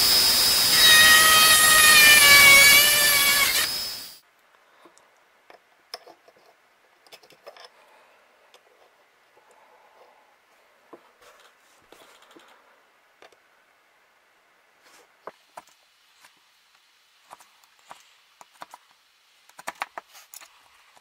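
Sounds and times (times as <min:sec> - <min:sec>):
rotary tool whining: 0:00.0 - 0:04.2.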